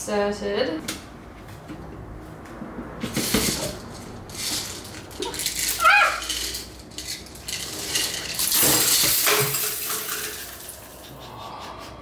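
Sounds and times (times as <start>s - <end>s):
metal container clinking and rattling: 3.1s - 11.1s.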